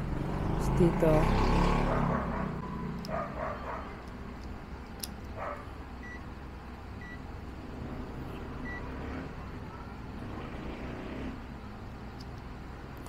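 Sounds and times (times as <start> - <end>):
multimeter continuity beeps: 6.0 - 6.3.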